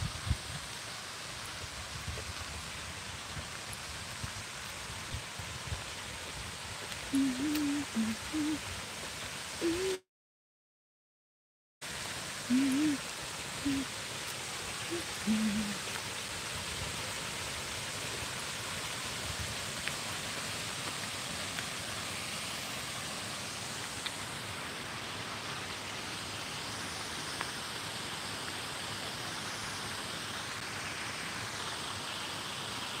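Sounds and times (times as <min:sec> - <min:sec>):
steady outdoor hiss: 0:00.0 - 0:10.0, 0:11.8 - 0:33.0
faint ticks: 0:06.9 - 0:08.6.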